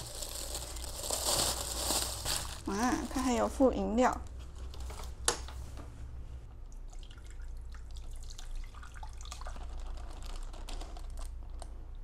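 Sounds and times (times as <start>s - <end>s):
soup pouring and sloshing: 6.7s - 10.5s.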